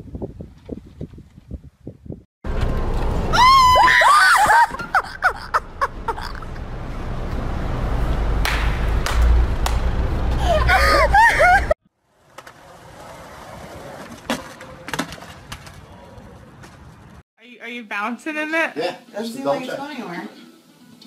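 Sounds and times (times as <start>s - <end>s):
shrill high-pitched screaming: 3.3s - 4.8s
low rumble: 5.6s - 11.8s.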